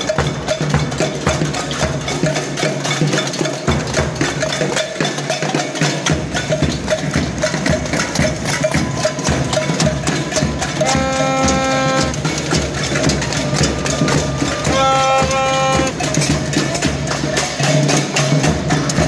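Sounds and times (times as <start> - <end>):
crowd beating drums and objects: 0.0 - 19.0
repeated knocking beat: 0.0 - 19.0
held pitched note: 13.6 - 16.1.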